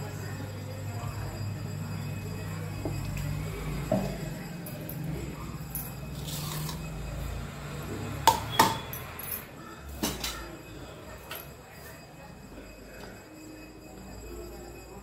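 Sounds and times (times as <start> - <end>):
containers clinking on counter: 8.2 - 9.1.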